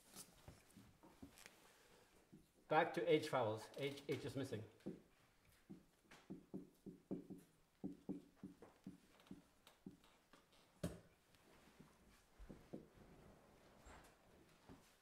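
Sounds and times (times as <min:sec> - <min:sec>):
marker writing on whiteboard: 0:03.8 - 0:11.1.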